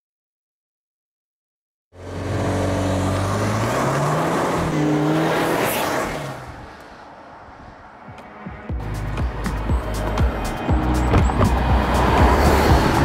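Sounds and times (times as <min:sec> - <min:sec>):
car engine accelerating: 0:02.0 - 0:07.5, 0:08.8 - 0:13.0
tyre and wind noise: 0:09.0 - 0:13.0.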